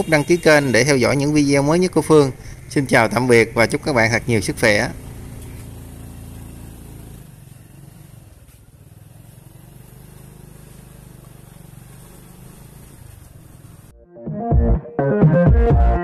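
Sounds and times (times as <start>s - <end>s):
motorcycle engine running: 1.1s - 13.9s.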